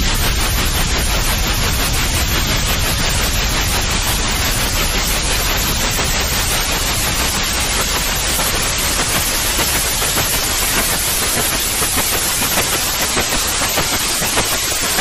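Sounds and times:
steady white noise hiss: 0:00.0 - 0:15.0.

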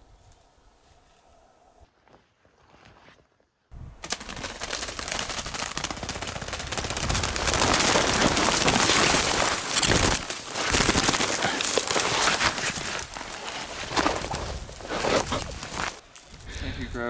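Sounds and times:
branches crackling against camera: 0:04.0 - 0:16.8.

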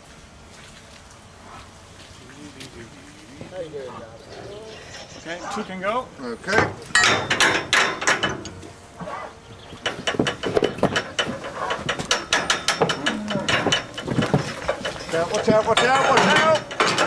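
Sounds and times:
metal gates clanking and rattling: 0:04.2 - 0:17.0.

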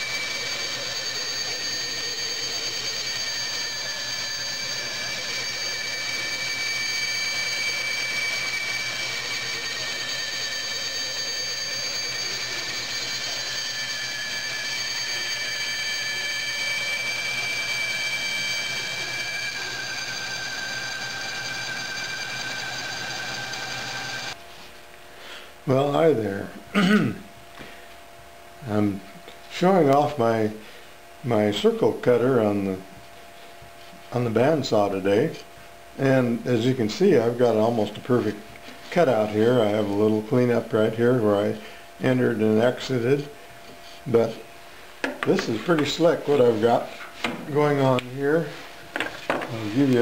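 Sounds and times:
band saw whining: 0:00.0 - 0:24.4, 0:45.2 - 0:48.6.

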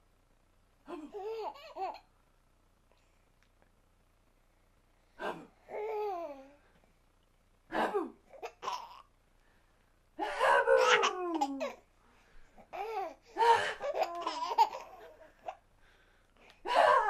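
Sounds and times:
baby laughing: 0:08.3 - 0:09.1, 0:10.7 - 0:11.8, 0:12.7 - 0:15.6.

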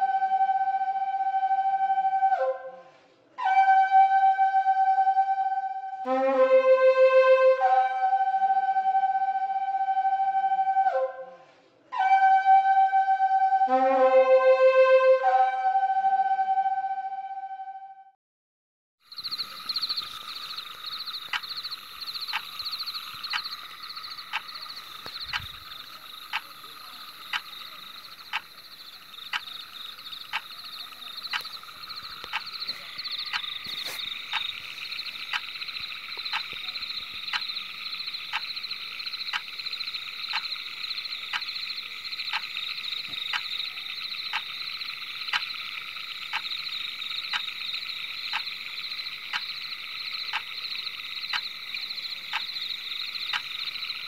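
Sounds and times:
frogs trilling chorus: 0:19.1 - 0:54.0
sharp clicking: 0:19.2 - 0:39.7, 0:40.3 - 0:41.7, 0:42.3 - 0:44.6, 0:45.2 - 0:45.6, 0:46.3 - 0:46.6, 0:47.3 - 0:47.6, 0:48.3 - 0:48.5, 0:49.3 - 0:49.6, 0:50.3 - 0:51.6, 0:52.3 - 0:52.6, 0:53.2 - 0:54.0.

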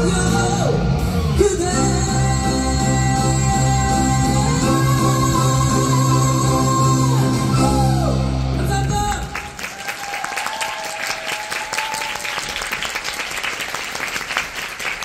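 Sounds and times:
accompanying music: 0:00.0 - 0:09.1
person singing into a microphone: 0:00.0 - 0:09.4
audience applause: 0:09.0 - 0:15.0.

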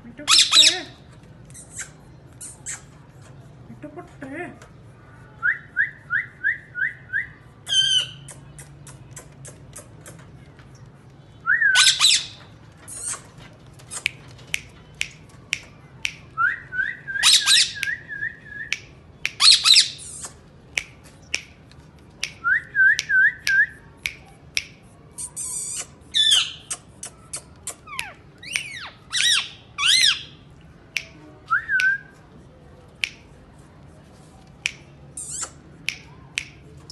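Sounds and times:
parakeets squawking: 0:00.3 - 0:01.0
parakeets whistling: 0:11.7 - 0:12.4, 0:17.2 - 0:17.8
sharp clicks: 0:12.7 - 0:16.4.

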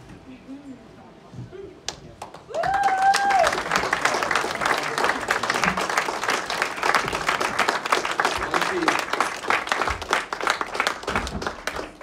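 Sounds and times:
audience applauding: 0:02.2 - 0:12.0
person cheering woo: 0:02.5 - 0:03.7.

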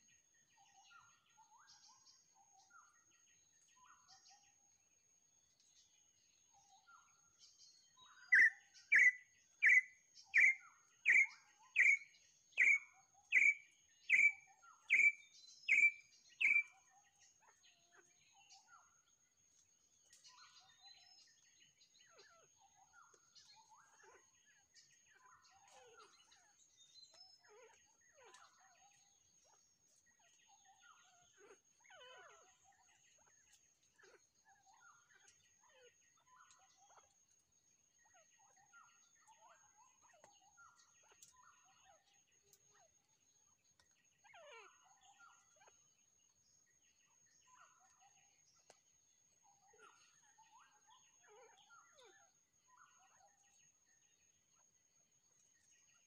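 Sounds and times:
faint bird chirps: 0:00.0 - 0:56.0
bird whistled calls: 0:08.2 - 0:16.7.

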